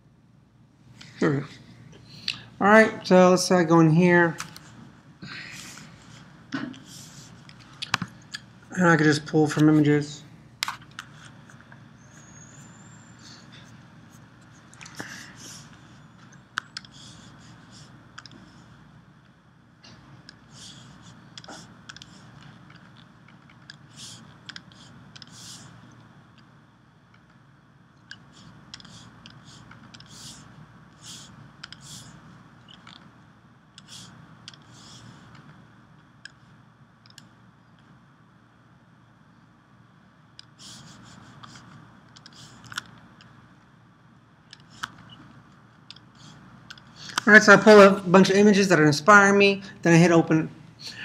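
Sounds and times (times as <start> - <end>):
low room hum: 0.0 - 51.0
computer mouse clicks: 16.6 - 17.1, 18.2 - 18.4, 21.4 - 26.5, 28.0 - 30.4, 31.0 - 32.1, 32.7 - 33.1, 33.8 - 35.6, 37.0 - 37.3, 40.4 - 43.3, 44.5 - 45.3, 45.9 - 47.2.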